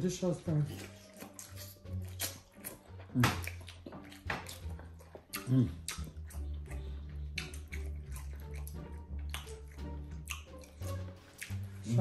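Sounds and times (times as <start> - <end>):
soft background music with bass: 0.0 - 12.0
wet chewing and mouth smacking: 0.3 - 12.0.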